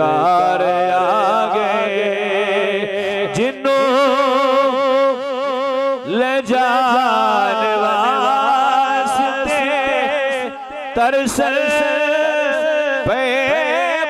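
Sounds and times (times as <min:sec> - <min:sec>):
man singing into a microphone: 0:00.0 - 0:14.0
singer breathing: 0:02.9 - 0:03.3.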